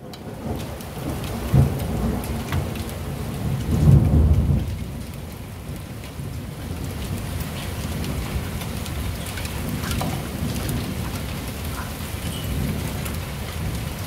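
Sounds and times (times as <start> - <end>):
heavy rain pouring: 0.0 - 14.0
raindrops ticking nearby: 0.0 - 14.0
rolling thunder: 0.0 - 14.0.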